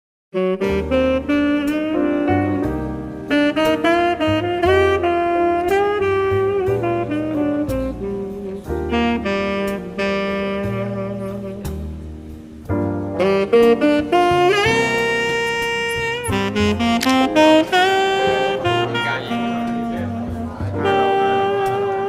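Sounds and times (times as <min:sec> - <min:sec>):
jazz drums: 0:00.4 - 0:22.0
saxophone melody: 0:00.4 - 0:22.0
walking bass line: 0:00.6 - 0:22.0.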